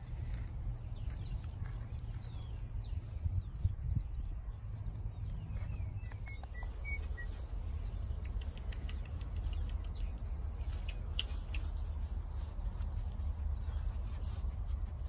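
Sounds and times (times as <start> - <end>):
wind rumbling on microphone: 0.0 - 15.0
high bird chirps: 5.6 - 7.4.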